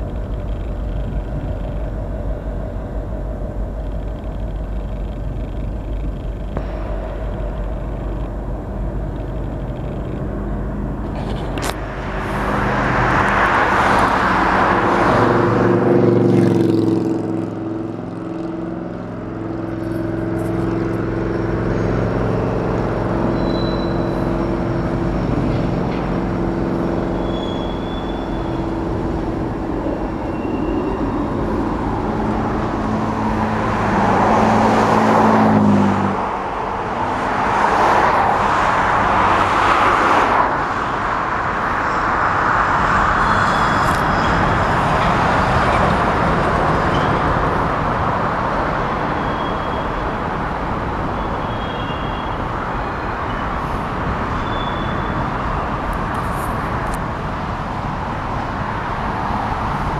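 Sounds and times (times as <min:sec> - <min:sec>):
road traffic hum: 0:00.0 - 0:59.9
car passing by: 0:10.9 - 0:18.3, 0:19.0 - 0:49.4.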